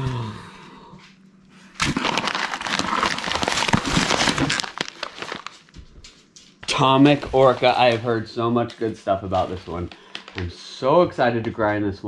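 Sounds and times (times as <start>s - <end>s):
packaging crinkling and rustling: 1.8s - 10.6s.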